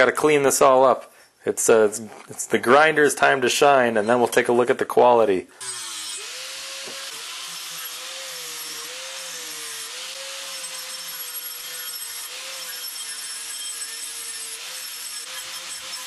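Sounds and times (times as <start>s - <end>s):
angle grinder grinding metal: 5.6s - 16.0s.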